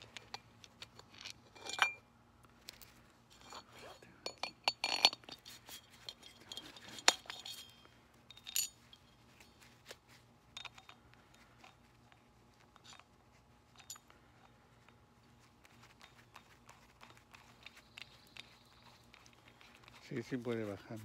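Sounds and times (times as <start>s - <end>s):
metal clinking and tapping: 0.0s - 2.0s, 3.4s - 9.5s, 10.5s - 11.0s, 13.7s - 15.0s.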